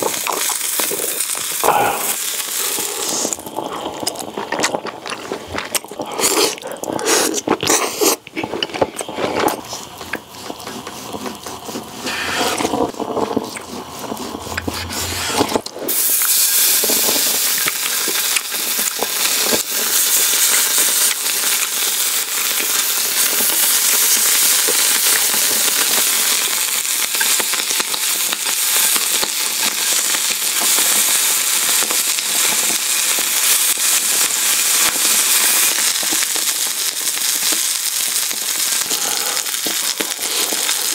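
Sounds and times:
meat sizzling on grill pan: 0:00.0 - 0:03.6, 0:15.9 - 0:40.9
person chewing: 0:00.0 - 0:20.0, 0:35.9 - 0:40.9.

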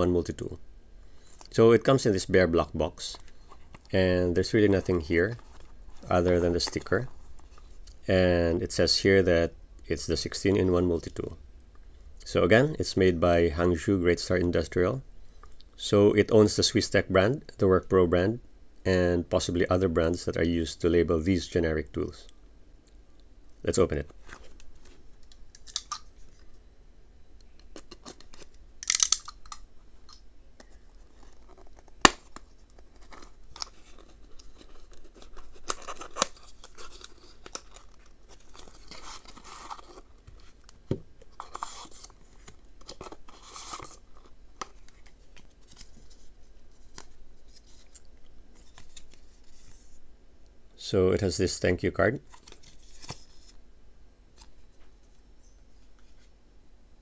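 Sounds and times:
cardboard tearing and rustling: 0:31.0 - 0:40.6.

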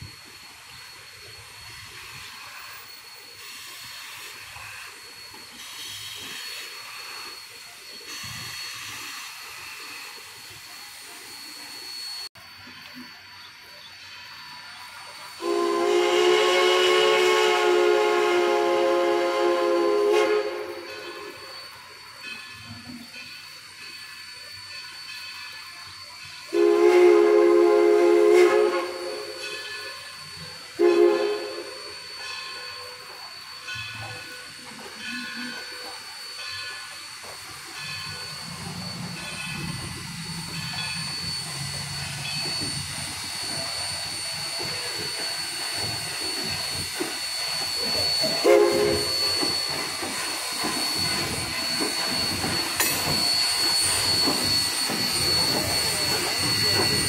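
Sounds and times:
steady high whine: 0:00.0 - 0:57.0
steam whistle blasts: 0:14.3 - 0:23.0, 0:24.1 - 0:37.0, 0:37.8 - 0:57.0
locomotive whistle toot: 0:15.4 - 0:21.7, 0:26.5 - 0:34.5, 0:47.5 - 0:49.7.

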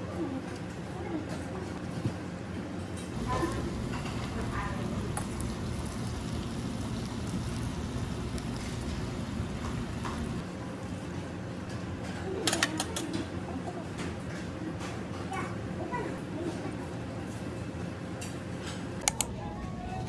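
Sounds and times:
meat sizzling on a griddle: 0:03.2 - 0:10.4.

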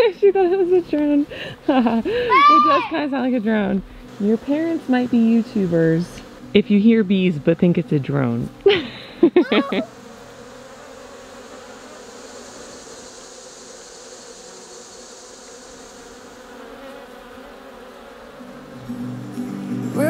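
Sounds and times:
bees buzzing: 0:00.0 - 0:20.0.

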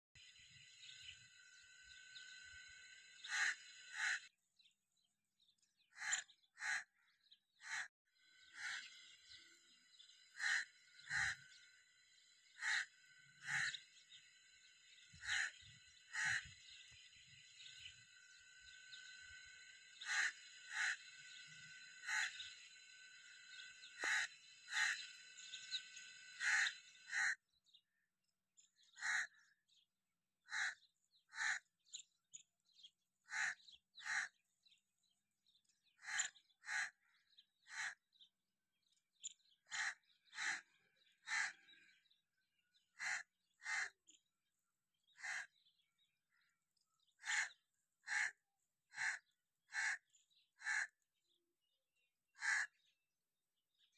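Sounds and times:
crow cawing: 0:02.2 - 0:04.3, 0:05.9 - 0:09.6, 0:10.3 - 0:11.8, 0:12.5 - 0:14.3, 0:15.0 - 0:27.4, 0:29.0 - 0:29.5, 0:30.5 - 0:31.7, 0:33.3 - 0:34.4, 0:36.0 - 0:38.0, 0:39.7 - 0:41.8, 0:42.9 - 0:44.0, 0:45.2 - 0:45.6, 0:47.2 - 0:51.0, 0:52.4 - 0:52.8
steady high background noise: 0:08.2 - 0:27.2.

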